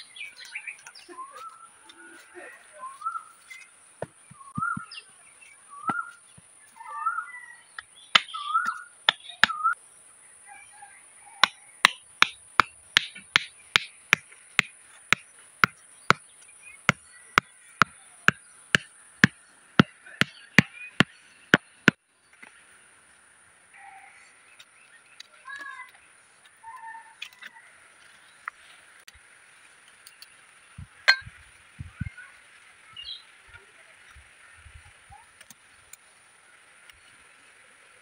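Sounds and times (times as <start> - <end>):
bird chirps: 0.0 - 9.8, 13.5 - 22.0, 30.0 - 36.2
hammer striking wooden stake: 7.8 - 9.7, 11.4 - 22.0, 31.0 - 31.4.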